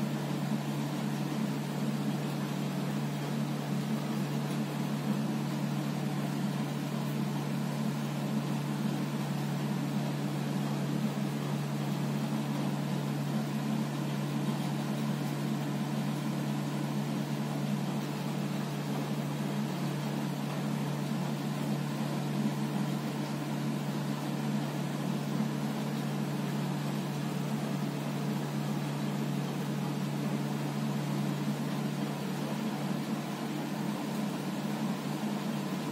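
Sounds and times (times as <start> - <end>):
low hum with even hiss: 0.0 - 35.9.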